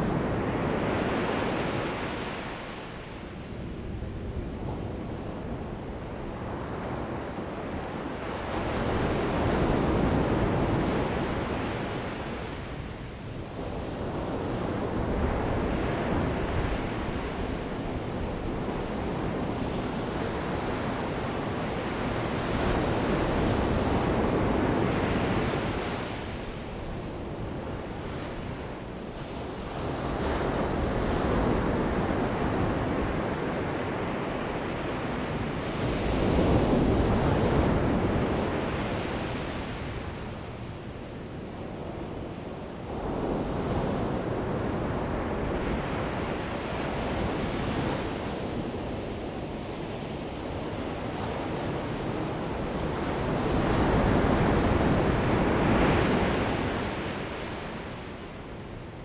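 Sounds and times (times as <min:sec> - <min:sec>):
sea surf breaking on beach: 0:13.6 - 0:59.0.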